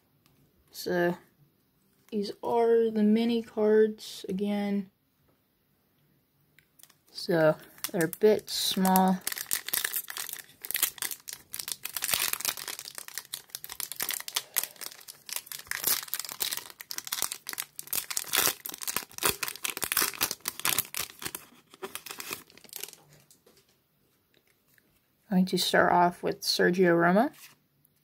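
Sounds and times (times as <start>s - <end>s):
foil wrapper tearing and crinkling: 7.7s - 23.1s.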